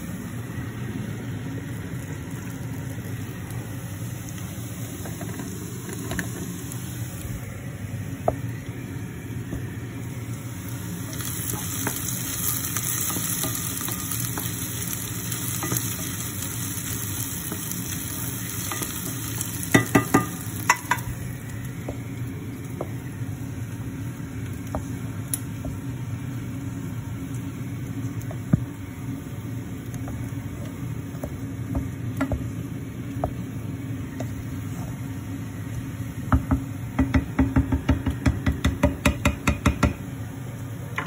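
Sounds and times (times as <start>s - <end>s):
food sizzling in a pan: 0.0s - 36.7s
spoon tapping on pan: 15.6s - 15.9s, 19.7s - 21.1s, 31.2s - 32.5s, 36.3s - 40.0s
sharp knocks against pan: 36.3s - 40.0s.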